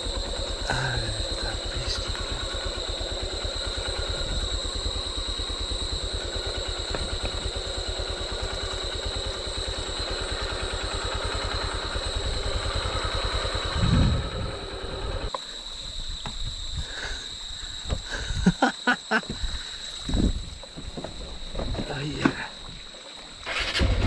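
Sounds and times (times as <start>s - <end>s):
dirt bike engine puttering: 0.0s - 15.3s, 20.1s - 24.0s.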